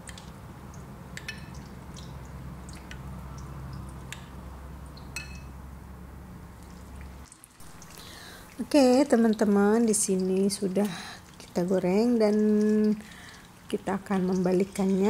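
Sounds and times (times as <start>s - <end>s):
steady low hum: 0.0s - 15.0s
light clinks against glass: 5.2s - 5.5s.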